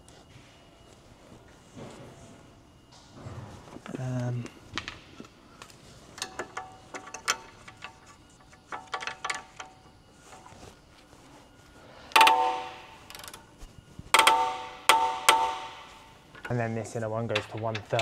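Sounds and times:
torque wrench ringing metallic clicks: 12.1s - 13.4s, 14.2s - 18.0s.

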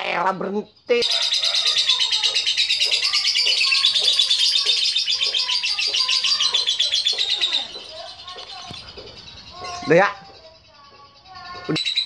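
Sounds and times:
bird chattering trill: 0.0s - 12.0s.

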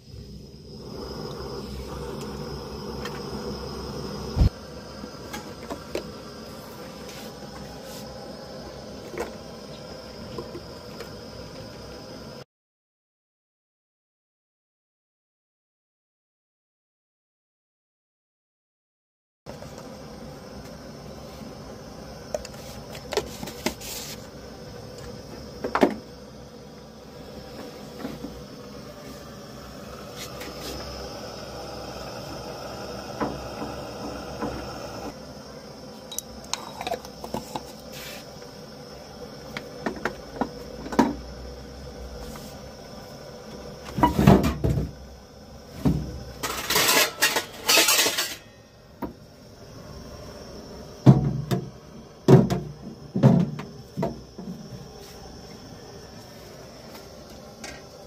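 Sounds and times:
metal pots and utensils clinking: 46.4s - 48.6s.

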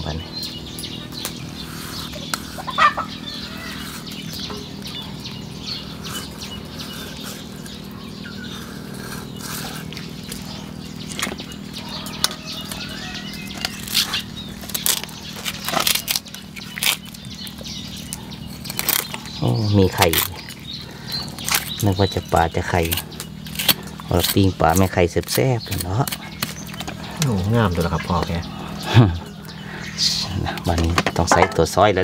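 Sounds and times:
birds chirping: 0.0s - 32.0s
steady low hum: 0.0s - 32.0s
fowl clucking: 2.6s - 3.7s.

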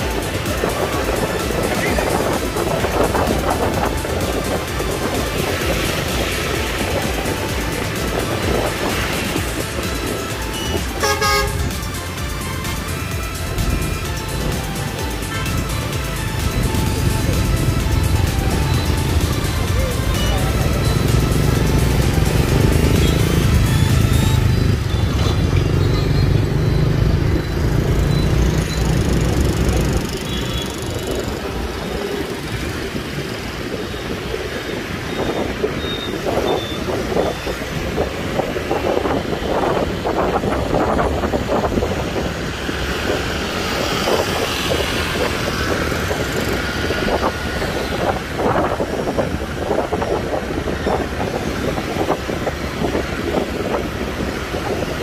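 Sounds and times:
heavy low rumble: 0.0s - 28.2s
motorbike and car engines: 0.0s - 55.0s
tyres humming on road: 0.0s - 55.0s.

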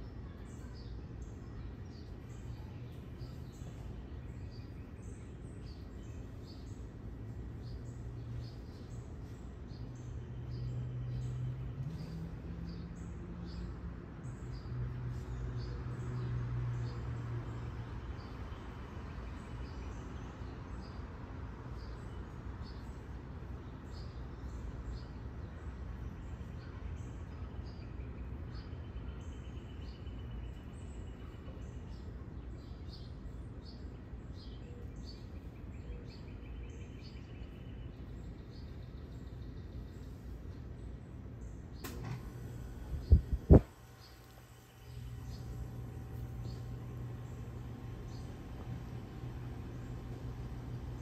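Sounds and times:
small birds chirping: 0.0s - 51.0s
low background rumble: 23.8s - 51.0s.

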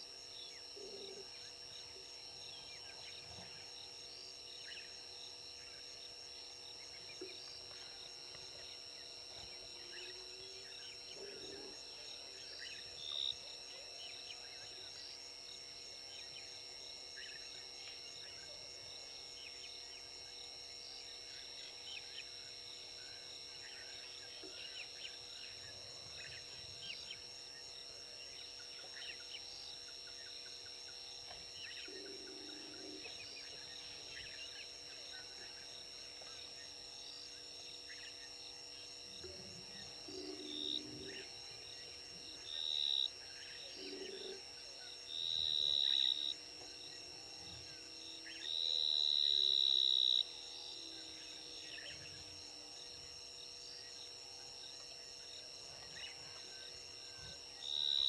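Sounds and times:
insects droning: 0.0s - 58.0s
loud high-pitched insect buzz: 39.8s - 54.2s.

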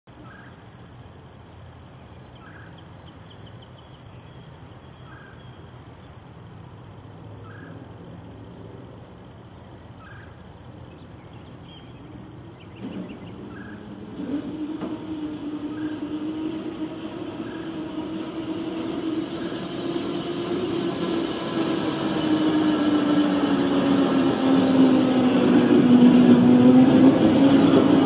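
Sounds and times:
faint bird chirps: 0.1s - 1.2s, 1.8s - 6.4s, 7.3s - 7.9s, 9.4s - 14.6s
low hum: 12.1s - 28.0s.

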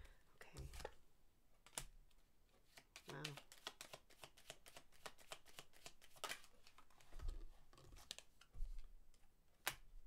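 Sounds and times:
cards being shuffled: 2.6s - 8.9s.

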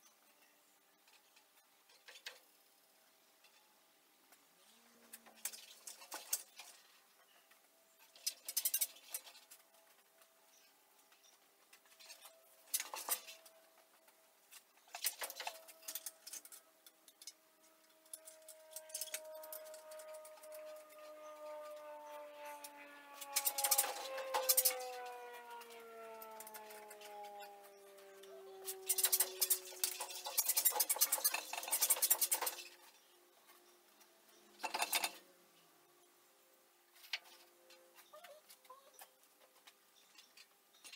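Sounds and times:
metal parts clinking and scraping: 11.8s - 13.5s, 14.5s - 20.5s, 28.8s - 33.1s, 34.6s - 35.2s.

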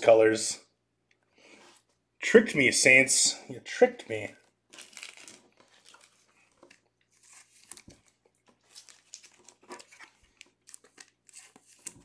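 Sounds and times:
cards and packaging rustling: 4.1s - 12.0s.

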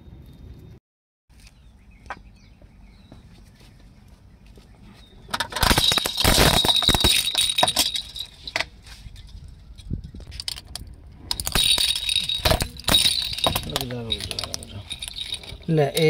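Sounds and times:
plastic toys cracking under tyre: 5.3s - 8.0s
pieces clinking on asphalt: 5.3s - 16.0s
rattle jingling: 5.4s - 10.7s, 11.3s - 16.0s.

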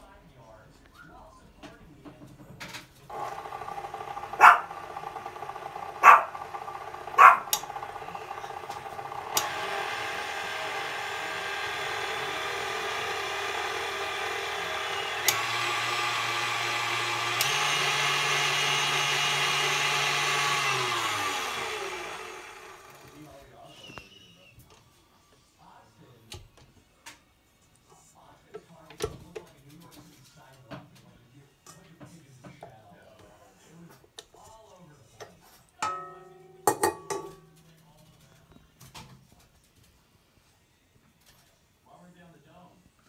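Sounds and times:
stand mixer motor running: 3.1s - 23.4s
dog barks: 4.4s - 4.7s, 6.0s - 6.4s, 7.2s - 7.6s.

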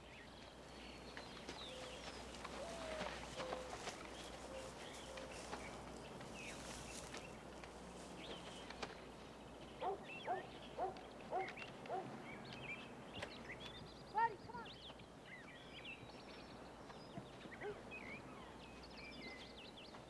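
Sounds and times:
birds chirping and whistling: 0.0s - 7.4s.

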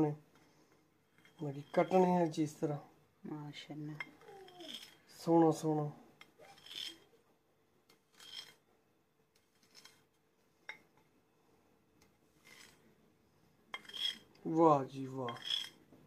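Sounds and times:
knife scraping a bowl: 1.0s - 2.4s, 4.0s - 5.3s, 6.2s - 7.2s, 7.9s - 8.6s, 9.3s - 10.1s, 12.4s - 12.8s, 13.7s - 14.4s, 15.2s - 15.9s.

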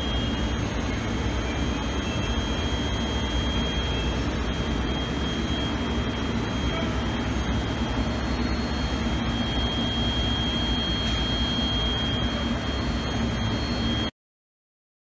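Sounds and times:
high whine: 0.0s - 14.1s
oven blowers whirring: 0.0s - 14.1s.

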